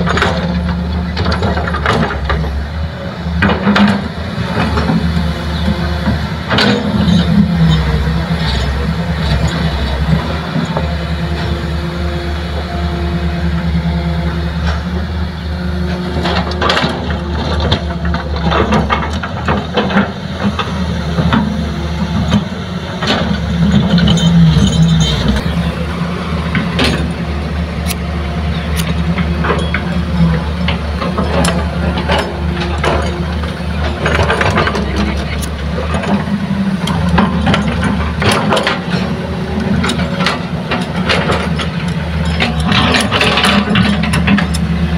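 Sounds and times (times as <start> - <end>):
excavator diesel engine running: 0.0 - 44.9
soil and rocks clattering: 28.8 - 44.9.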